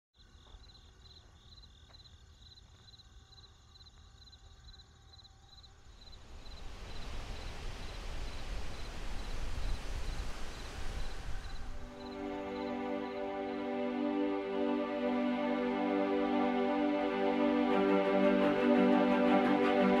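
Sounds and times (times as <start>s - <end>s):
insects chirping in pulses: 0.2s - 17.9s
low rumble: 5.8s - 12.5s
broad rushing hiss: 5.8s - 13.3s.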